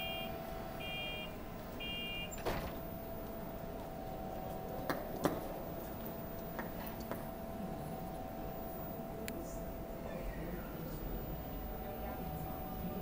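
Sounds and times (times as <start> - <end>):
electronic beep: 0.0 - 2.4, 10.6 - 11.7
electrical hum: 0.0 - 13.0.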